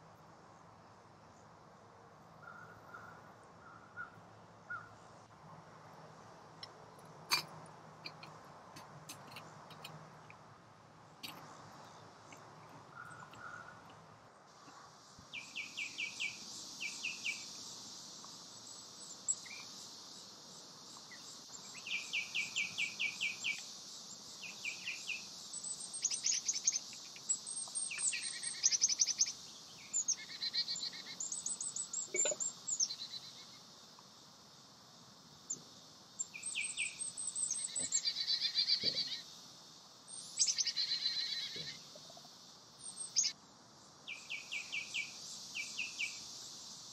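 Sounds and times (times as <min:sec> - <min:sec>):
insect hiss: 0:00.0 - 0:46.9
birds singing and calling: 0:11.2 - 0:14.0, 0:15.3 - 0:17.6, 0:21.0 - 0:33.6, 0:36.2 - 0:39.3, 0:40.1 - 0:43.4.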